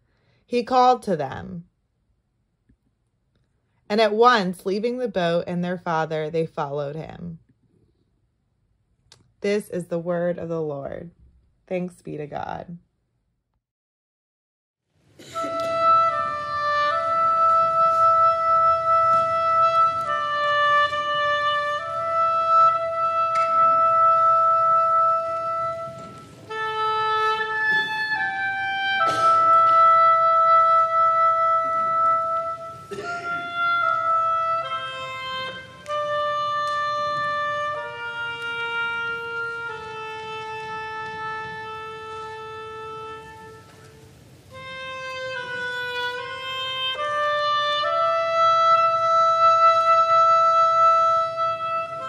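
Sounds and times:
slow woodwind melody: 0:15.2 - 0:52.0.

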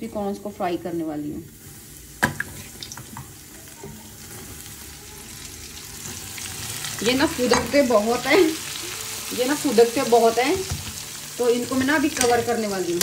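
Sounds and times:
corn kernels sizzling in oil: 0:00.0 - 0:13.0.

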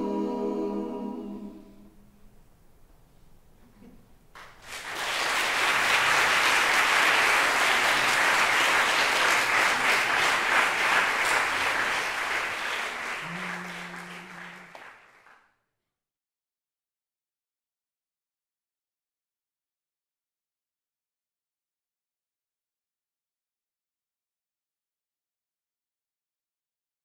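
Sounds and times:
audience applauding: 0:04.4 - 0:15.4.

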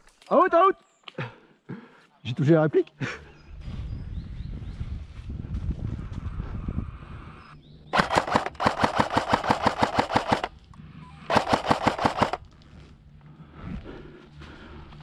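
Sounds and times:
airsoft rifle bursts: 0:07.9 - 0:10.6, 0:11.3 - 0:12.4.

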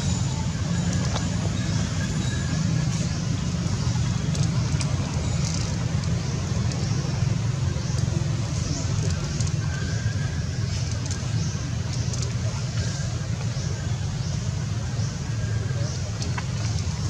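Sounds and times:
low rumbling: 0:00.0 - 0:17.0
faint clicks: 0:10.7 - 0:13.6.

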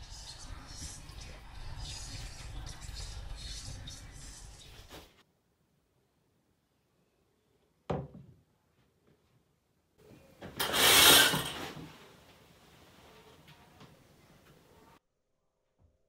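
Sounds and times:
shower curtain rings scraping rod: 0:10.6 - 0:11.9.

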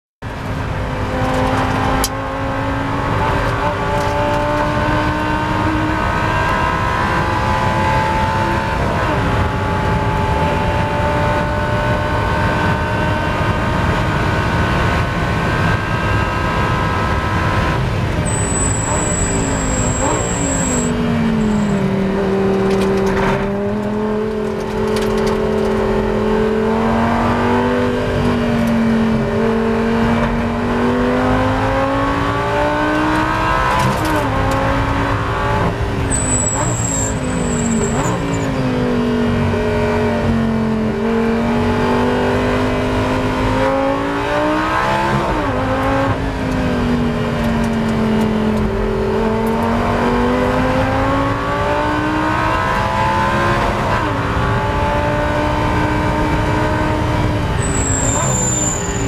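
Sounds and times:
race car engine revving: 0:00.3 - 0:59.0
high steady beep: 0:18.3 - 0:21.8.

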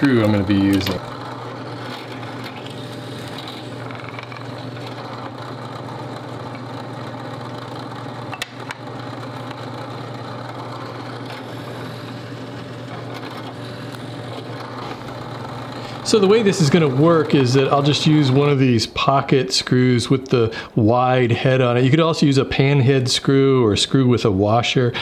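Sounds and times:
drill press motor humming: 0:00.0 - 0:19.3.

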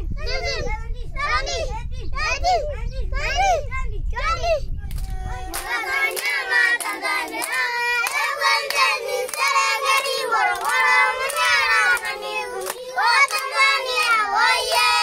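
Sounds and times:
children clapping: 0:04.9 - 0:15.0
children singing: 0:05.2 - 0:15.0.

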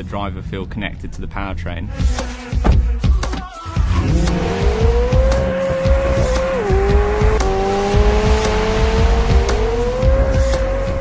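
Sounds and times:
car engine accelerating: 0:03.8 - 0:11.0.

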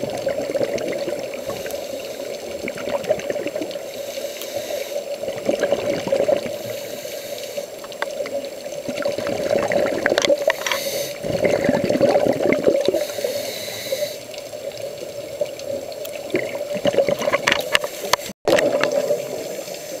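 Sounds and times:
gurgling exhaled bubbles: 0:00.0 - 0:03.9, 0:05.1 - 0:06.9, 0:08.1 - 0:20.0
muffled underwater drone: 0:12.9 - 0:14.4.

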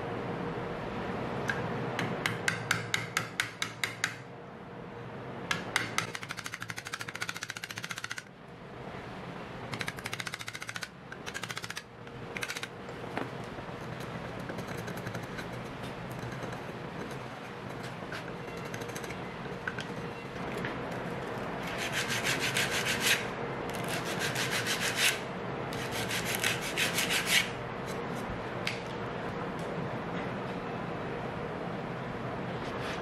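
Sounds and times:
hammer striking wood chisel: 0:02.0 - 0:04.2, 0:05.5 - 0:08.1.

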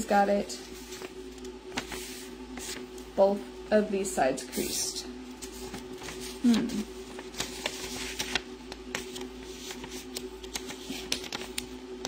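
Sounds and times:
faint steady hum: 0:00.0 - 0:12.0
paper crackling and rustling: 0:00.5 - 0:03.2, 0:05.3 - 0:12.0.

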